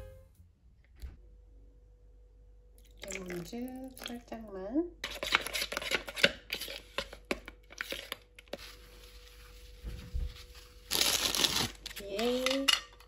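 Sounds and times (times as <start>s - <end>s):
metal spoon scraping a bowl: 5.0s - 7.2s.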